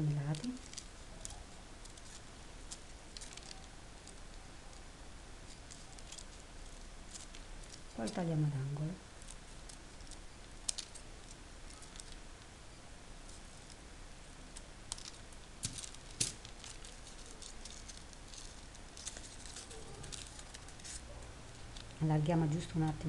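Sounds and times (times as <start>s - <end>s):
paper rustling: 0.1s - 4.4s, 14.9s - 22.0s.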